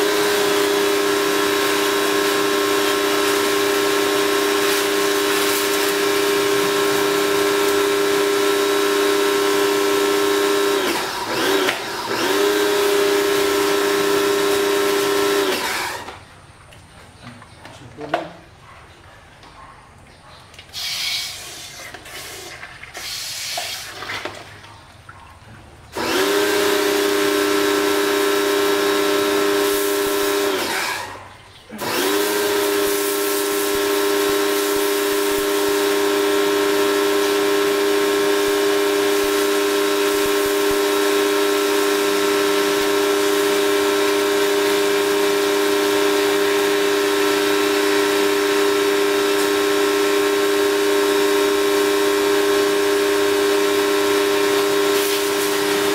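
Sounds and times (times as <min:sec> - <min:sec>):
pressure washer pump humming: 0:00.0 - 0:18.5, 0:20.6 - 0:24.7, 0:25.8 - 0:55.9
water jet hissing: 0:20.7 - 0:24.5, 0:26.5 - 0:55.9.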